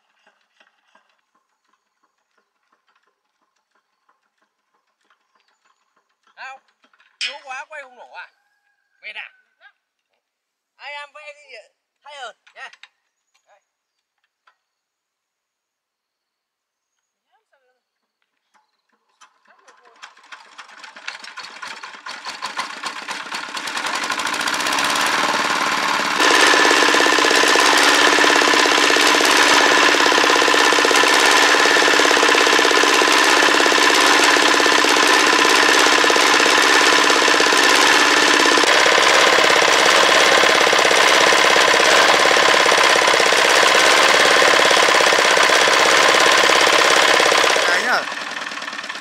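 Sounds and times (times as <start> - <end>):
diesel engine starting and running: 20.0 - 49.0.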